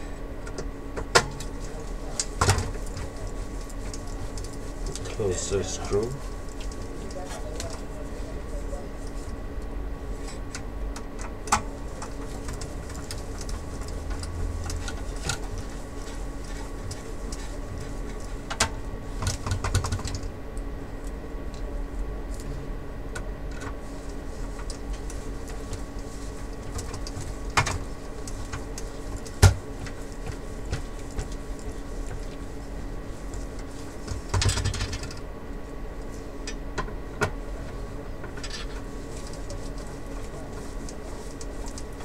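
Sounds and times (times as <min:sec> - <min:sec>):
background hum: 0:00.0 - 0:42.0.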